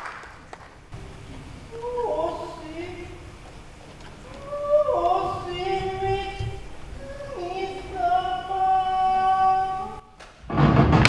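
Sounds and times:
person chanting: 0:01.0 - 0:03.3, 0:04.2 - 0:10.1.

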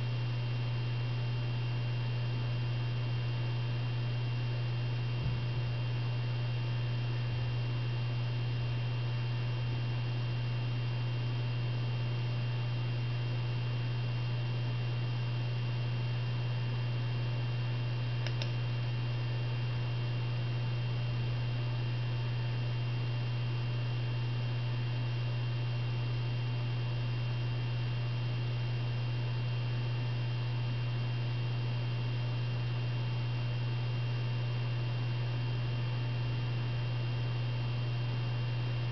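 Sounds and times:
low electrical hum: 0:00.0 - 0:38.9
faint click: 0:18.2 - 0:18.6.

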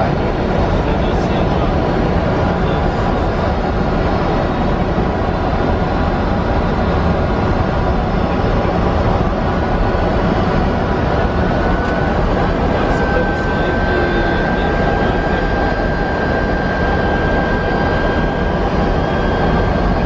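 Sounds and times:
faint steady whine: 0:00.0 - 0:20.0
jet engine and airflow rush: 0:00.0 - 0:20.0.

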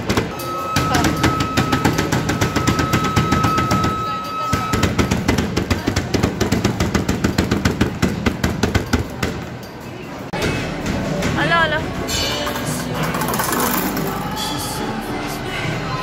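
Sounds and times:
steady high tone: 0:00.3 - 0:05.0.

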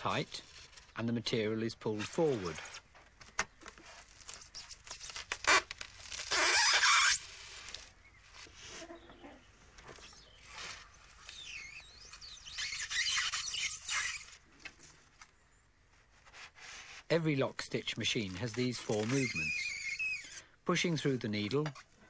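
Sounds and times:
polystyrene squeaking and scraping: 0:00.0 - 0:01.0, 0:01.9 - 0:02.9, 0:03.6 - 0:14.4, 0:16.0 - 0:20.5.

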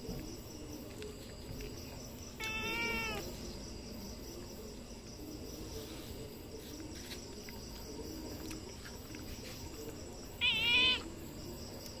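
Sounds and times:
cat meowing: 0:02.4 - 0:03.3, 0:10.4 - 0:11.1.

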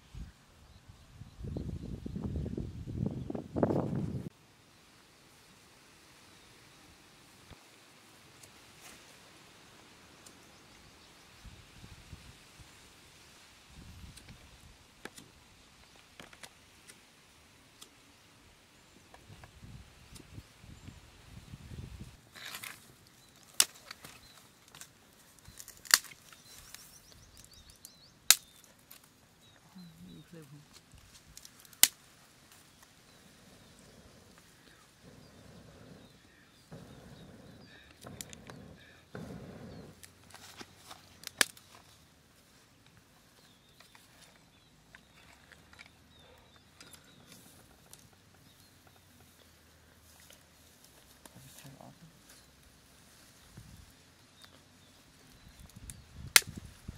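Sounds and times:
straw fire crackling: 0:07.2 - 0:56.9
dry sticks clicking and rustling: 0:15.0 - 0:17.0, 0:22.3 - 0:29.6, 0:30.5 - 0:32.9, 0:40.0 - 0:42.0, 0:42.8 - 0:49.5, 0:55.2 - 0:56.6
stick snapping: 0:25.5 - 0:26.8, 0:27.4 - 0:29.1, 0:31.2 - 0:32.0, 0:41.2 - 0:41.7, 0:55.6 - 0:56.6
sharp fire pops: 0:55.6 - 0:56.9.

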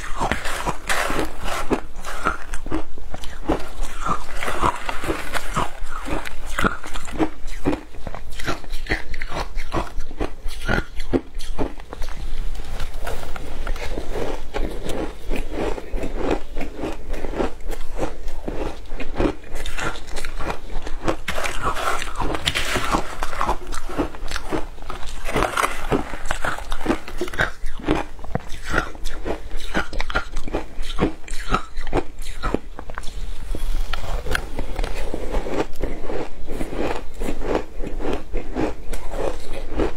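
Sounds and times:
crunching shaved ice: 0:00.0 - 0:11.7, 0:13.6 - 0:32.6.

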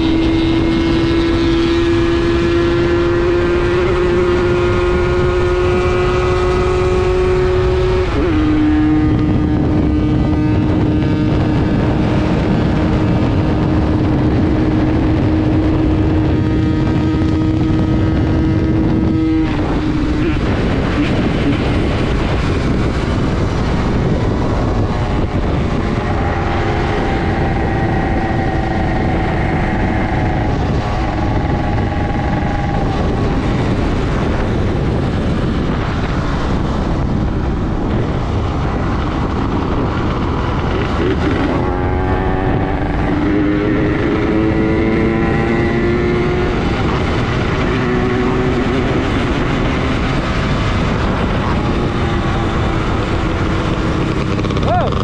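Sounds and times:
wind noise on microphone: 0:00.0 - 0:55.0
two-stroke motorcycle engine: 0:37.8 - 0:55.0.

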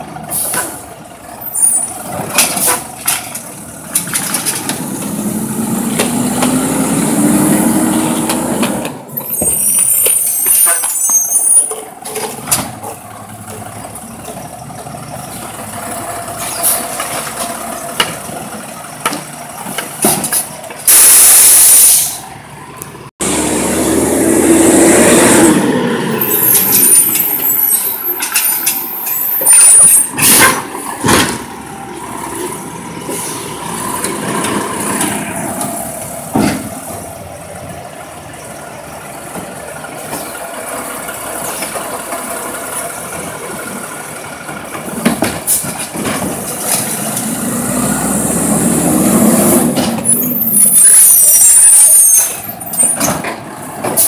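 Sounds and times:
garbage truck engine revving: 0:00.0 - 0:54.0
air brake hiss: 0:20.9 - 0:22.2.

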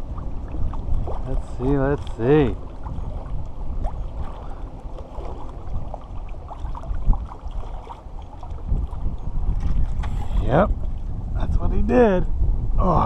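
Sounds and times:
water lapping around dock pilings: 0:00.0 - 0:11.4.

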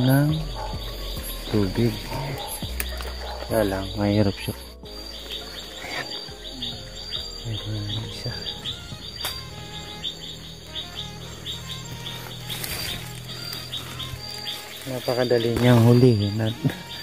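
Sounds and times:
crickets chirping: 0:00.0 - 0:17.0
high-pitched insect trill: 0:00.0 - 0:17.0.

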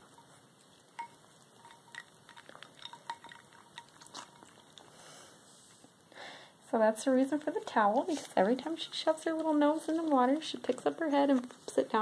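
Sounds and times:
ice cubes clinking in bowl: 0:01.0 - 0:04.8
water drips and splashes: 0:01.0 - 0:04.8.

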